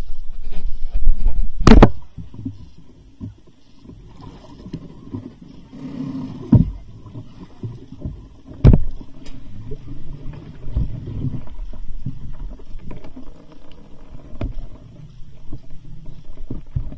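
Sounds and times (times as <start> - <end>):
people moving around a boat: 0.0 - 16.9
loud thumps on a boat: 1.6 - 2.0, 8.6 - 8.9.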